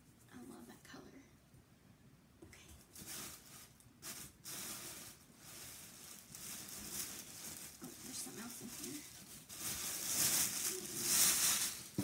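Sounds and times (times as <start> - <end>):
tissue paper rustling: 2.8 - 12.0.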